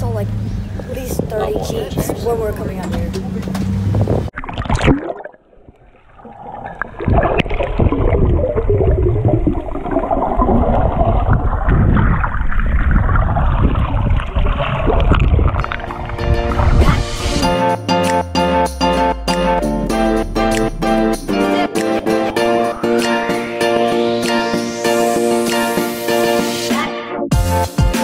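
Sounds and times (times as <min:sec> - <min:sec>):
muffled underwater churning: 0:00.3 - 0:17.5, 0:20.1 - 0:25.5
water splash: 0:04.3 - 0:17.6.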